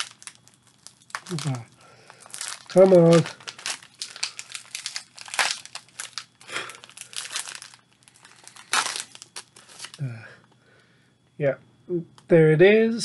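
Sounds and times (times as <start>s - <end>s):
plastic wrapper tearing: 0.0s - 10.0s
plastic wrapper crinkling: 0.0s - 10.1s.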